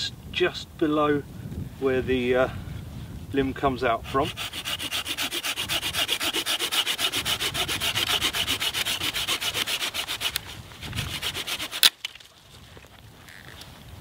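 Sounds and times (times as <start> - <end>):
folding saw cutting branch: 4.2 - 12.4.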